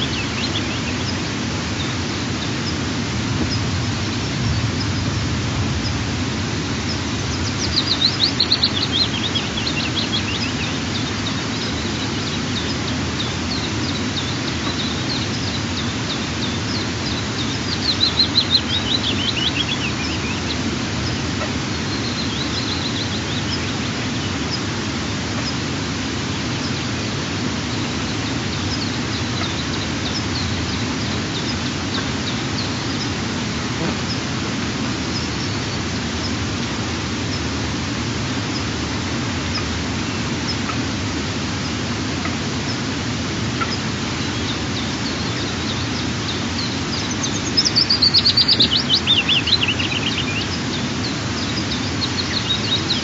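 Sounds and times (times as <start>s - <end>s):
faint bird chirps: 0.0s - 2.8s, 43.6s - 53.0s
songbird trilling: 0.0s - 2.8s, 6.8s - 24.7s, 26.3s - 34.3s, 43.5s - 53.0s
low background rush: 0.0s - 53.0s.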